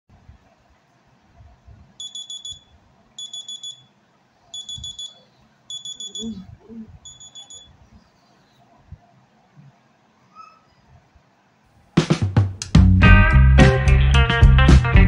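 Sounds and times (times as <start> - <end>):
phone alarm beeping: 2.0 - 6.4, 7.0 - 7.8.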